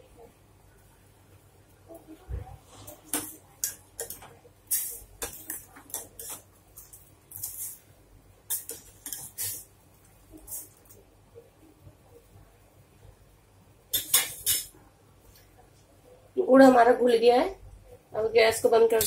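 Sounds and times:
spoon scraping and clinking in pot: 2.9 - 7.8, 8.5 - 9.7, 13.9 - 14.7.

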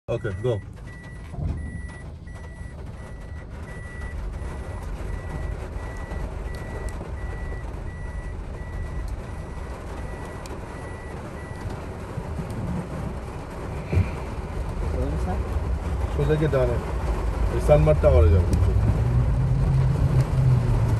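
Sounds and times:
vehicle warning beep: 0.1 - 11.7
vehicle rumble: 0.1 - 20.9.

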